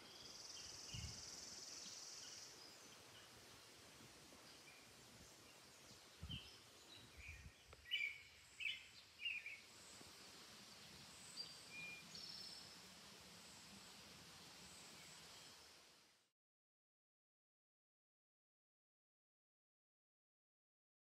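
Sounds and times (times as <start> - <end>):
faint background hiss: 0.0 - 16.3
bird chirps: 4.4 - 9.7.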